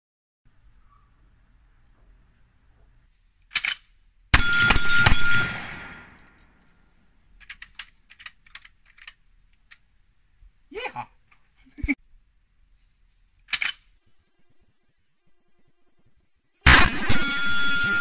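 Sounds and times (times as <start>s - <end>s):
rifle metallic clicks: 3.5s - 3.9s, 7.3s - 9.9s, 13.5s - 13.9s
rifle shots echoing: 4.4s - 6.6s, 16.6s - 18.0s.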